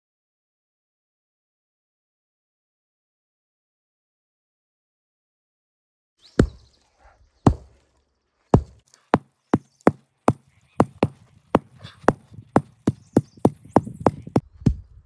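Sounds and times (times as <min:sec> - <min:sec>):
hammer strikes: 0:06.4 - 0:06.6, 0:07.5 - 0:07.8, 0:08.6 - 0:08.8.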